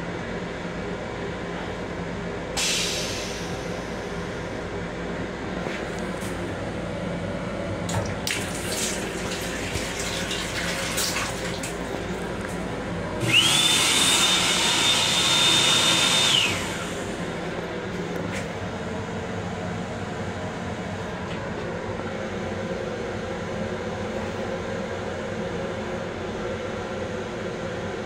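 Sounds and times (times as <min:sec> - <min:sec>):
faucet running into sink: 0:07.9 - 0:12.0
hand dryer blowing: 0:08.2 - 0:17.5.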